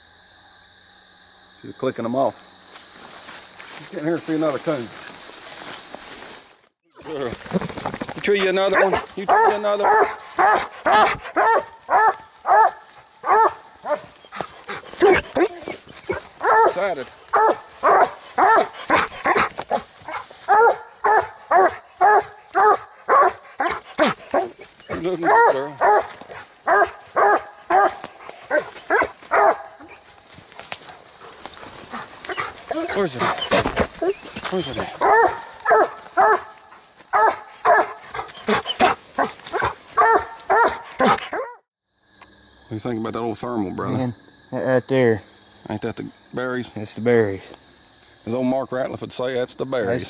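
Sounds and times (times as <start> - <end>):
dog barking: 8.7 - 30.0, 31.9 - 41.6.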